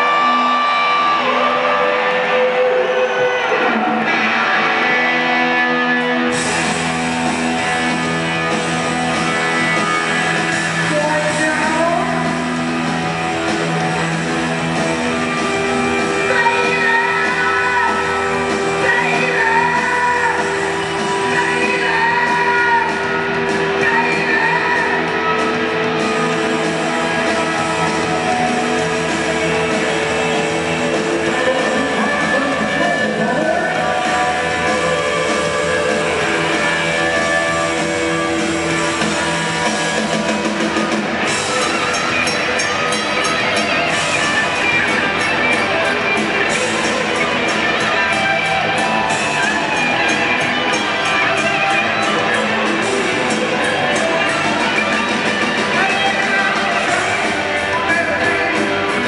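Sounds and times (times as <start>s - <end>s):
lead singer: 0.0s - 59.0s
live hard rock band: 0.0s - 59.0s.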